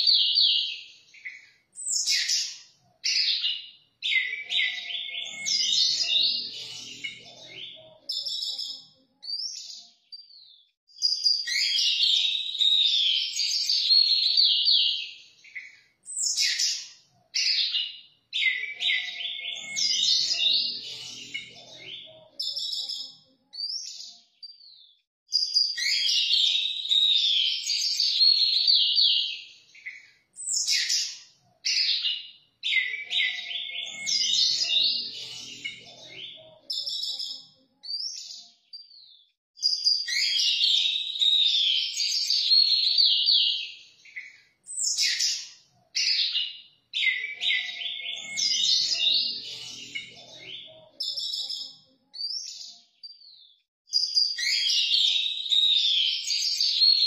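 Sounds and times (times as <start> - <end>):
thrush singing whistles and trills: 39.6 - 52.8, 53.9 - 57.0.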